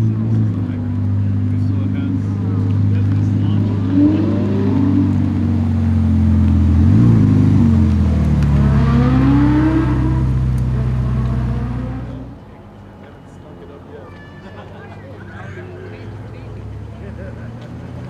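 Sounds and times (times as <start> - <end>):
car engine revving and accelerating: 0.0 - 12.4.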